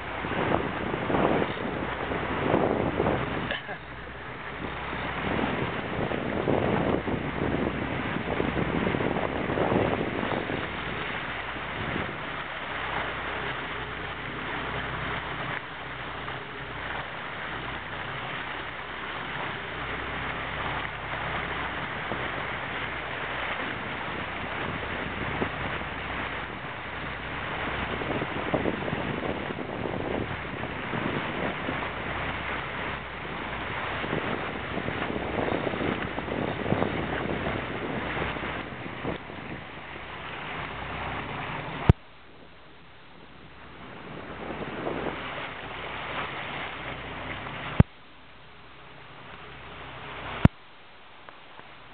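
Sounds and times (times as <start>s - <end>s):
wind buffeting microphone: 0.0s - 47.9s
low engine hum: 0.0s - 51.9s
water splashing around boat: 0.0s - 51.9s.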